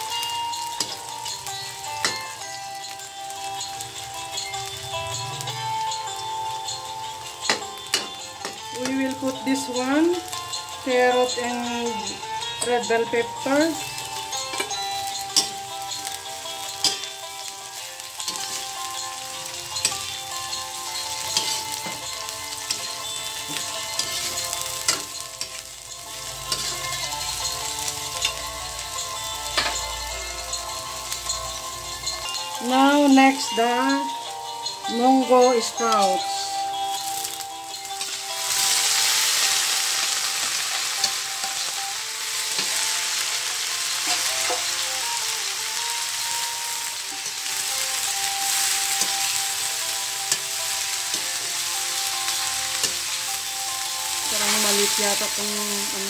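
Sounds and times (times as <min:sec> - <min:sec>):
vegetables sizzling in a wok: 0:00.0 - 0:56.0
metal spatula clinking on wok: 0:00.7 - 0:01.1, 0:14.5 - 0:17.1, 0:18.0 - 0:19.2, 0:21.0 - 0:27.3, 0:29.4 - 0:30.0.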